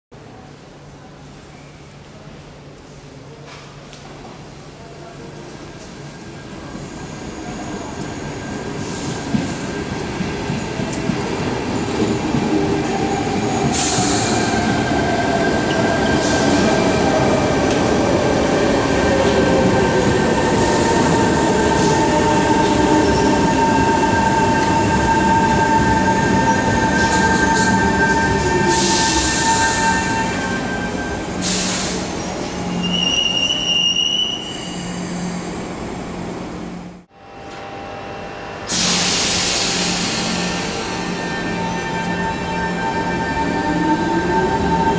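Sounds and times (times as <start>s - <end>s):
high brake squeal: 26.5s - 35.4s
air hiss: 31.4s - 32.1s.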